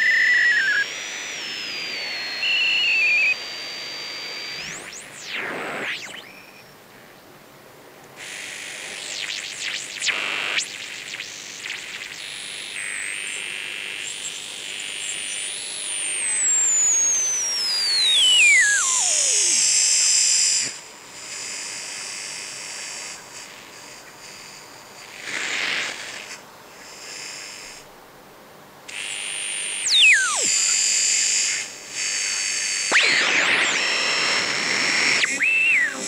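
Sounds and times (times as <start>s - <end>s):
radio whistle sweeping in pitch: 0.0s - 6.7s, 8.6s - 12.9s, 15.1s - 20.8s, 28.9s - 36.0s
radio hiss and static: 0.0s - 6.8s, 8.2s - 28.0s, 28.9s - 36.0s.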